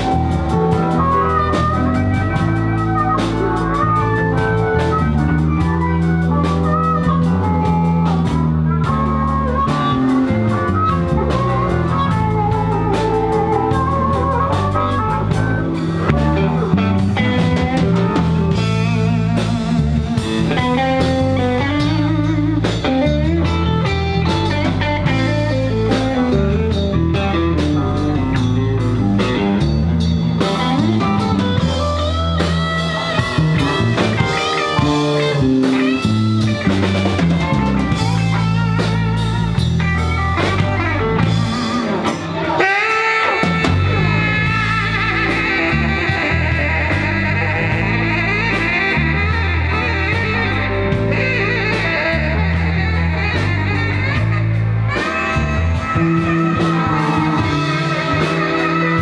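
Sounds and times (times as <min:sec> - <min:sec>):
blues band playing: 0:00.0 - 0:59.0
saxophone: 0:00.0 - 0:59.0.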